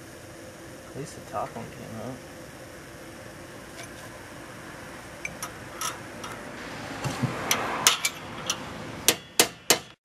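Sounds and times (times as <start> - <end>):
metal hand tools clinking: 5.2 - 6.4, 7.5 - 8.7.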